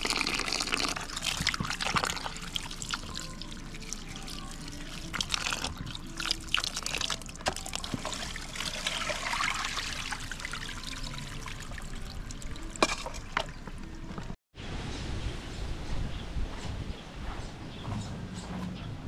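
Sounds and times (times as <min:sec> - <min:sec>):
water pouring and trickling: 0:00.0 - 0:14.3.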